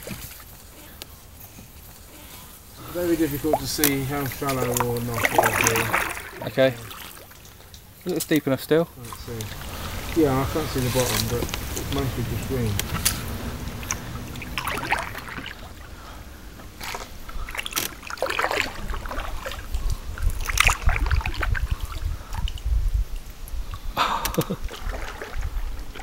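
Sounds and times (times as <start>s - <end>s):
paddle splashing in water: 0.0s - 22.7s, 23.6s - 26.0s
low rumble: 9.0s - 17.7s.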